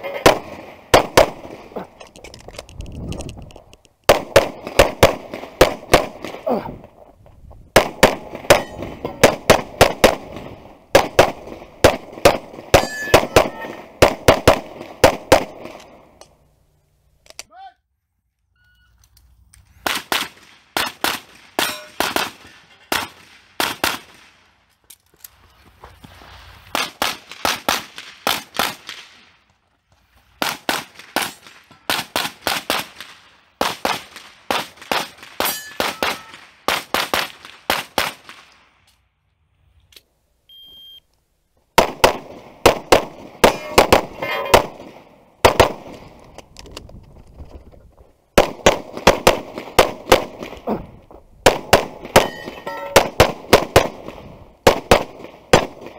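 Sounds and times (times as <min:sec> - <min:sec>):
rapid pistol shots: 0:00.2 - 0:01.7, 0:04.1 - 0:06.4, 0:07.8 - 0:15.8, 0:19.8 - 0:24.2, 0:26.8 - 0:29.0, 0:41.8 - 0:46.1, 0:48.4 - 0:50.6, 0:51.4 - 0:55.9
short electronic beep: 0:18.5 - 0:19.0, 0:40.5 - 0:41.1.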